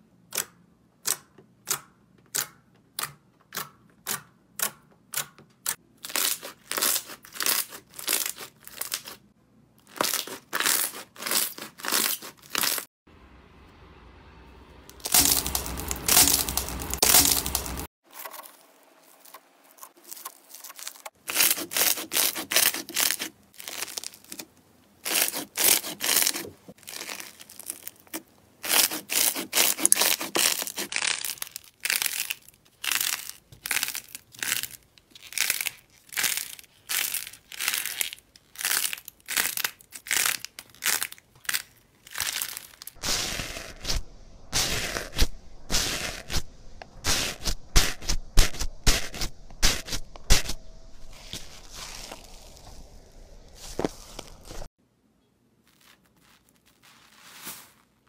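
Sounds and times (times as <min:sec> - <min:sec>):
slime crackling and popping: 0:14.9 - 0:18.4, 0:19.2 - 0:46.4
slime squishing: 0:15.0 - 0:46.4.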